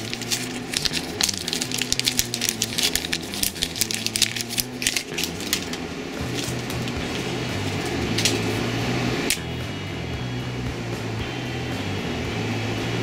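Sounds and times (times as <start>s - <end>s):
plastic packaging crackling: 0.0s - 8.6s
background music with bass line: 0.0s - 13.0s.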